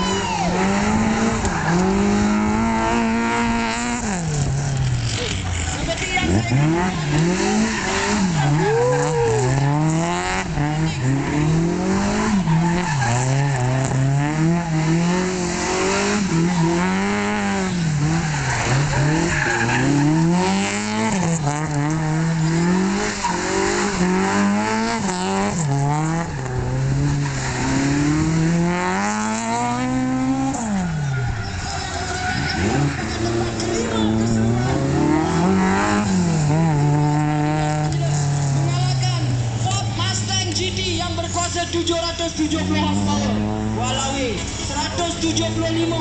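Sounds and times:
tyres squealing on tarmac: 0.0 - 2.4, 4.5 - 10.0, 10.6 - 14.8, 16.0 - 24.2, 29.6 - 46.0
car engine revving: 0.0 - 46.0.

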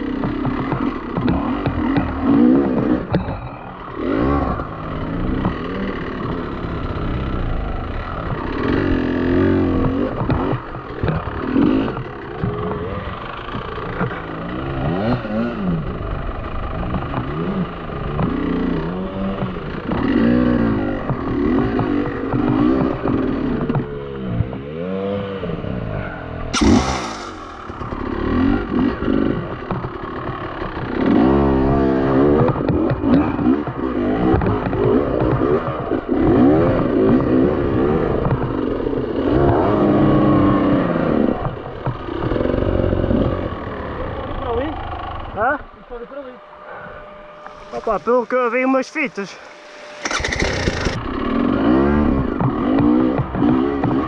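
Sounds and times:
dirt bike engine revving: 0.0 - 54.0
sharp crack: 26.5 - 28.6.

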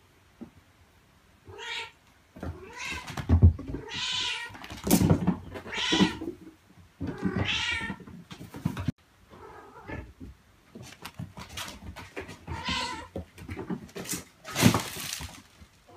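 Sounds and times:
cat meowing: 1.5 - 3.1, 5.6 - 6.3.

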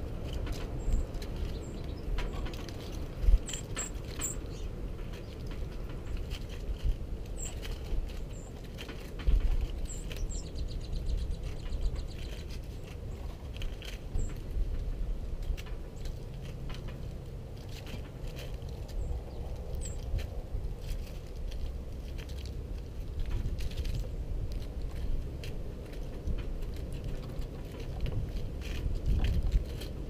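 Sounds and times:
birds pecking seed: 0.0 - 30.0
high bird chip calls: 0.7 - 5.5, 9.7 - 13.4.

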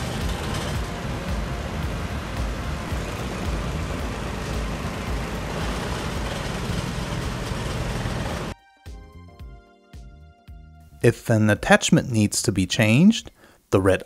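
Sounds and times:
excavator diesel engine running: 0.0 - 8.6
hydraulic attachment working ground: 0.0 - 8.6.

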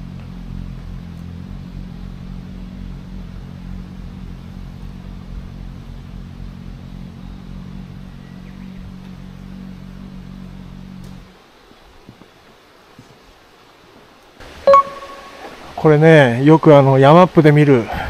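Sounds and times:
engine idling: 0.0 - 11.3.

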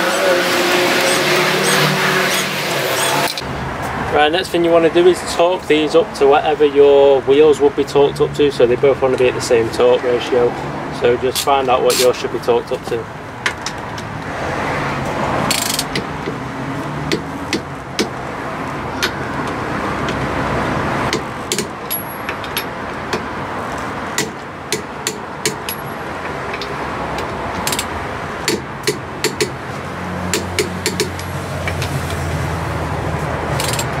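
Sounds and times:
torque wrench clicking: 15.5 - 16.0, 27.6 - 27.9, 33.6 - 34.0.

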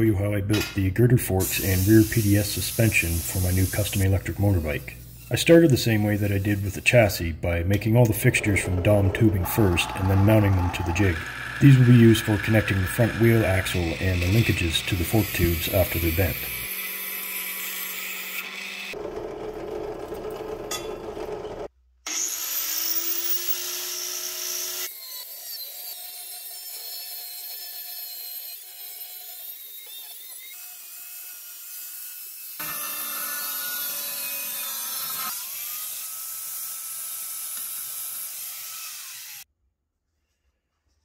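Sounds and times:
angle grinder cutting steel: 7.8 - 19.0, 22.1 - 39.5
drill press drilling steel: 8.0 - 16.7.

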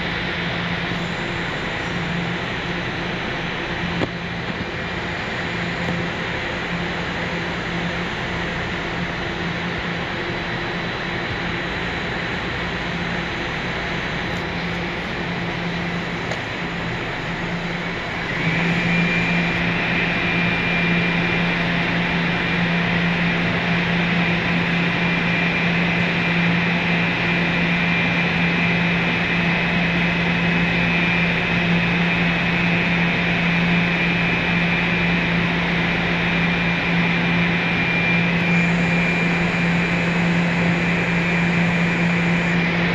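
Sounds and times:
high whine: 0.0 - 42.9
subway machinery hum and hiss: 0.0 - 42.9.

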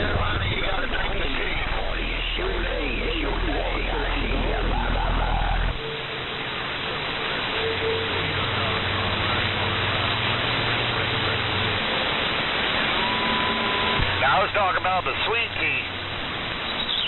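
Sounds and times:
faint low hum: 0.0 - 16.3
radio static hiss: 0.0 - 17.0.

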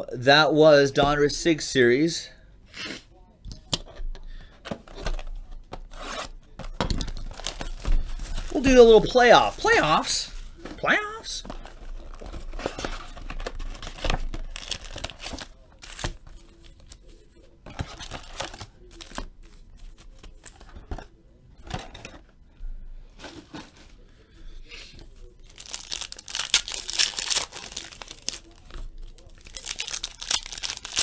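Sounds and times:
packaging tearing and crinkling: 7.0 - 10.0, 11.6 - 16.3, 25.4 - 31.0
foil pack tearing: 25.5 - 31.0.

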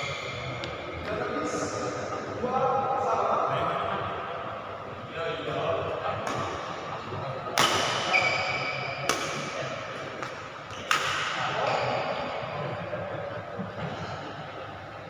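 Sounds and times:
murmur of background noise: 0.0 - 15.0
rackets hitting shuttlecock: 7.5 - 12.2.

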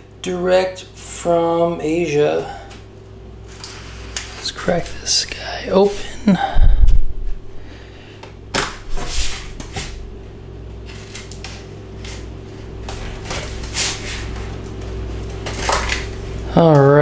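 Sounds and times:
steady low hum: 0.0 - 17.0
knife slitting packing tape: 10.9 - 12.3, 15.5 - 16.1.

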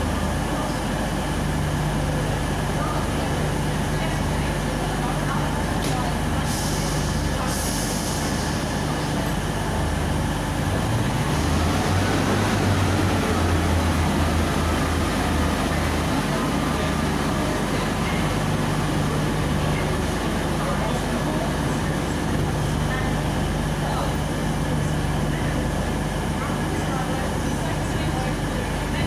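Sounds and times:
train diesel engines: 0.0 - 29.0
hiss: 6.4 - 8.7.

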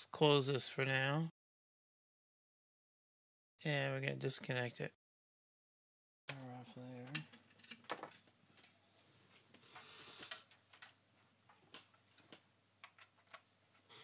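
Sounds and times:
faint clicks and light knocks: 7.0 - 13.9.

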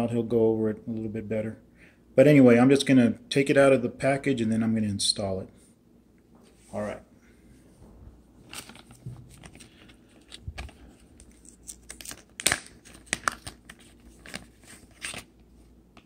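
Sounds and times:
plastic bag crinkling: 8.4 - 15.3.

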